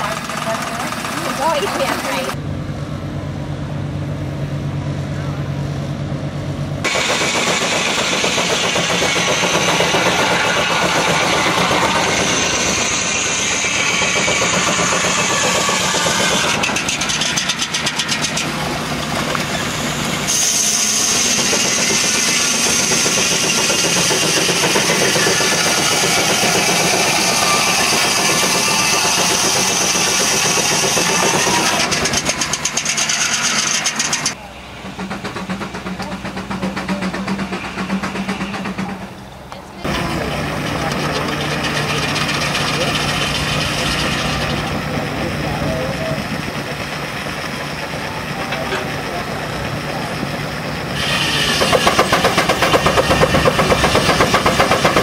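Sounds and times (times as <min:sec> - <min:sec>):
steam engine running: 0:00.0 - 0:02.4, 0:06.8 - 0:55.0
circular saw cutting log: 0:06.8 - 0:34.4, 0:39.8 - 0:55.0.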